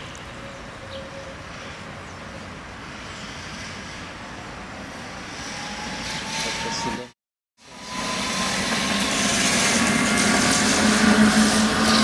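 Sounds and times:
tram rolling rumble: 0.0 - 12.0.

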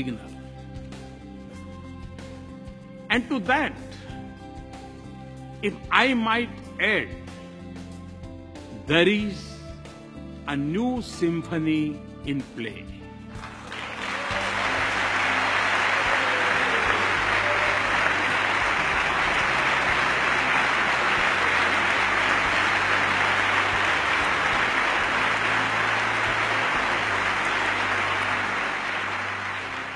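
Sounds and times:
large crowd applauding: 13.3 - 29.9.

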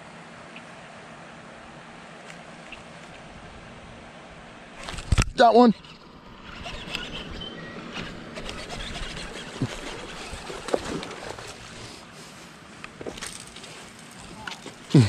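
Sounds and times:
fishing reel cranking: 5.8 - 11.3
water splashing: 7.8 - 12.0.

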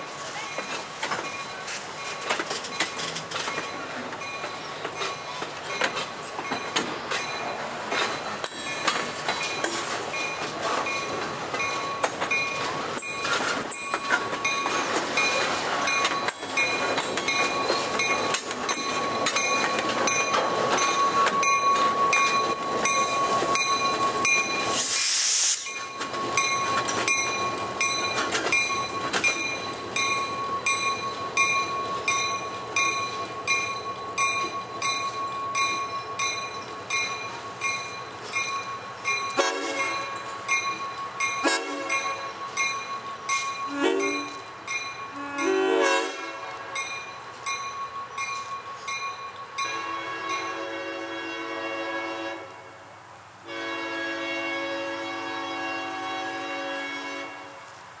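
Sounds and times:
train wheels clicking over rail joints: 0.2 - 50.6
brief hiss: 24.7 - 25.8.

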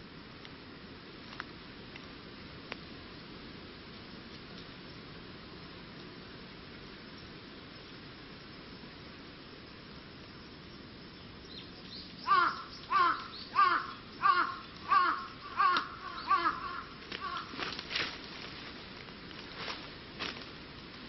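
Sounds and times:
crow cawing: 12.2 - 17.7.

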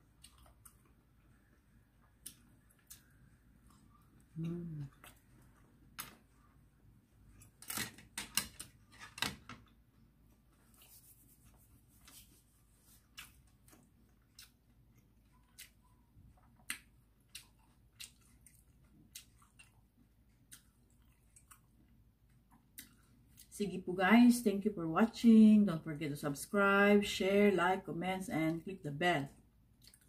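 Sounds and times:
person chewing crunchy food: 0.0 - 6.3, 12.7 - 23.5, 29.8 - 30.0.

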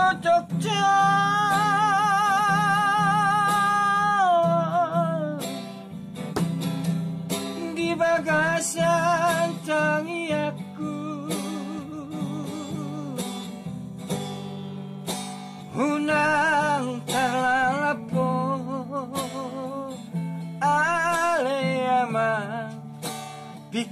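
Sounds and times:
man singing high with vibrato: 0.0 - 5.4, 7.6 - 13.3, 15.7 - 19.9
strummed acoustic guitar: 0.0 - 23.9.

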